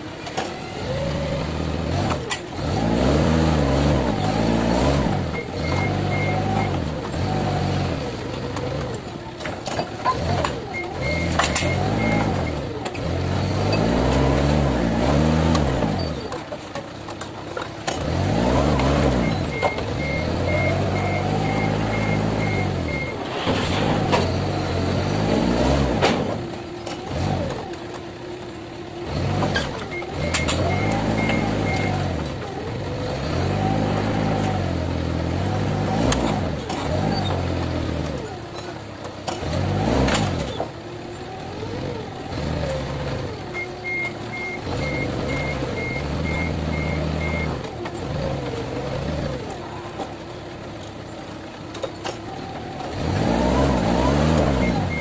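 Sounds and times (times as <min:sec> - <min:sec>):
forklift engine revving: 0:00.0 - 0:55.0
reversing alarm beeps: 0:29.9 - 0:32.0.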